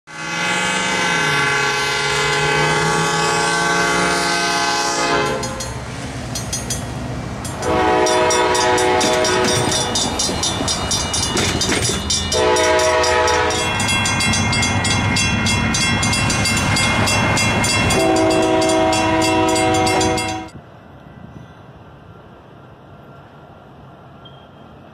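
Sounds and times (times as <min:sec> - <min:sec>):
locomotive air horn blasts: 0:00.1 - 0:05.6, 0:07.6 - 0:10.0, 0:12.3 - 0:13.9, 0:16.7 - 0:20.5
train rumbling and clattering: 0:01.4 - 0:24.9
crossing bells ringing: 0:05.2 - 0:20.6.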